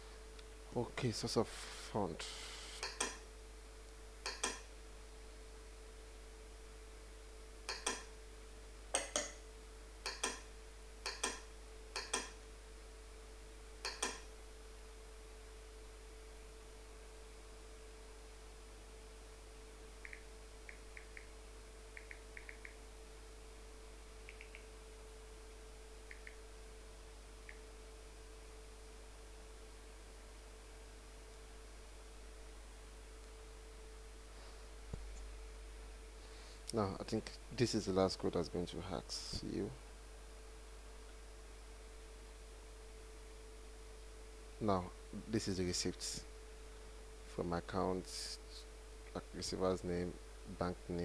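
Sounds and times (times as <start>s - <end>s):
faint electrical hum: 0.0s - 51.0s
computer mouse clicking: 2.8s - 3.2s, 4.2s - 4.6s, 7.7s - 8.1s, 10.1s - 10.4s, 11.1s - 11.4s, 12.0s - 12.4s, 13.9s - 14.2s, 20.0s - 21.3s, 21.9s - 22.8s, 24.2s - 24.7s, 26.1s - 26.4s
faint light ticks: 26.1s - 26.4s.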